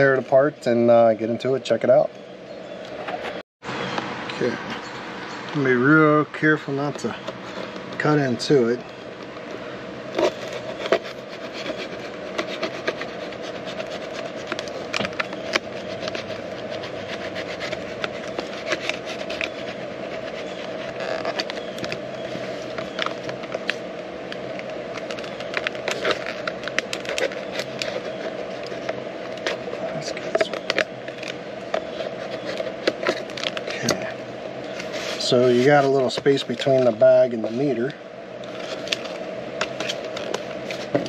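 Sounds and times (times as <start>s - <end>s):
plastic packaging crackling: 9.2s - 41.0s.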